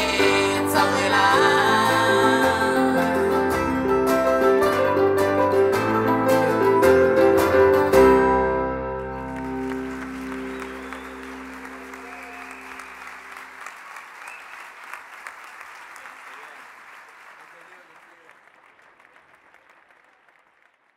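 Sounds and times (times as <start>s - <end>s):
audience applauding: 0.0s - 7.5s, 9.0s - 20.9s
acoustic guitars strumming: 0.0s - 12.6s.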